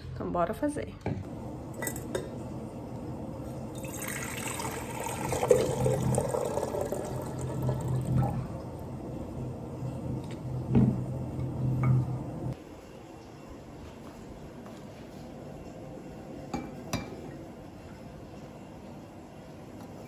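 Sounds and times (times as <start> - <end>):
water filling a container: 3.7 - 8.8
low hum: 4.6 - 14.6.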